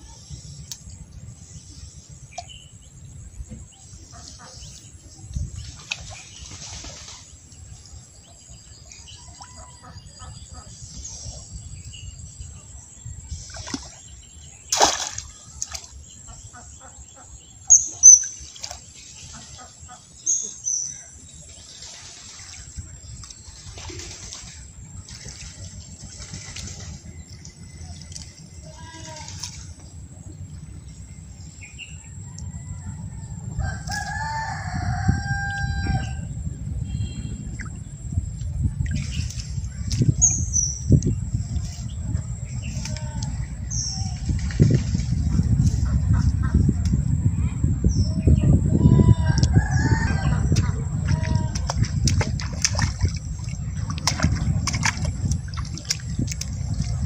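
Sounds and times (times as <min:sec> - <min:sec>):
steady low rumble: 0:00.0 - 0:17.7, 0:22.6 - 0:57.0
small water sound: 0:00.0 - 0:46.3, 0:49.3 - 0:57.0
splash in pond water: 0:05.4 - 0:07.6, 0:13.3 - 0:16.2, 0:17.9 - 0:20.0, 0:21.4 - 0:29.9, 0:38.8 - 0:40.2, 0:49.4 - 0:57.0
rooster crowing: 0:32.1 - 0:36.3, 0:49.0 - 0:50.6.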